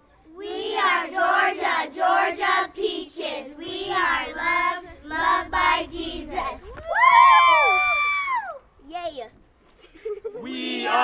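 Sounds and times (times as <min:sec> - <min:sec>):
girls singing a cheer: 0:00.4 - 0:06.8.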